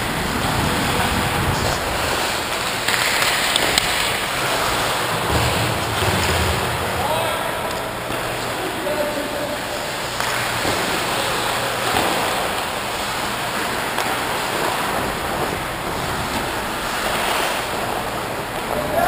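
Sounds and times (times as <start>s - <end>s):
skate blades scraping ice: 10.1s - 18.6s.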